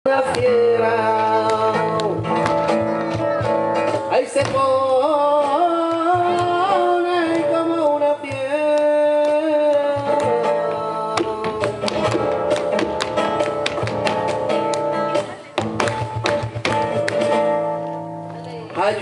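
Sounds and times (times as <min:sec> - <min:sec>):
acoustic guitar: 0:00.0 - 0:19.0
flamenco-style singing: 0:00.0 - 0:19.0
sharp percussive taps: 0:01.4 - 0:04.8, 0:08.2 - 0:18.8.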